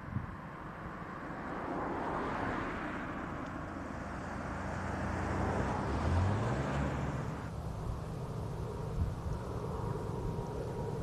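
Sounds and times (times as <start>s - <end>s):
low engine hum: 0.0s - 11.0s
steady rushing noise: 6.6s - 11.0s.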